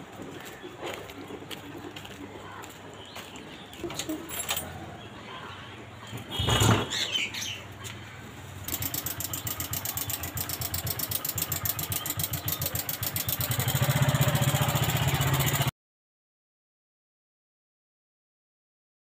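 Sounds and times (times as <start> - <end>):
motorcycle engine idling: 7.6 - 15.7.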